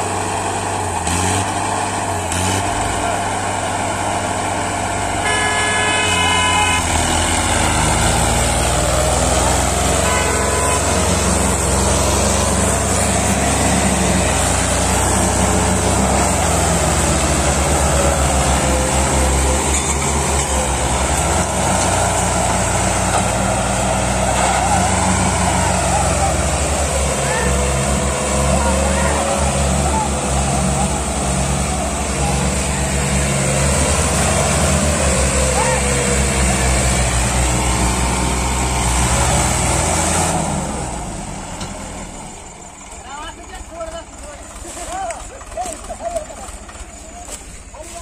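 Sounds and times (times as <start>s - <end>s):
tractor diesel engines under load: 0.0s - 48.0s
horn tooting: 5.1s - 7.5s, 9.3s - 12.9s.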